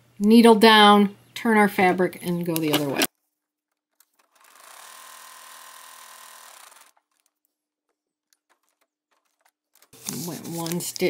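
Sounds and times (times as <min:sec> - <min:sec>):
sewing machine stitching: 0:04.0 - 0:07.4.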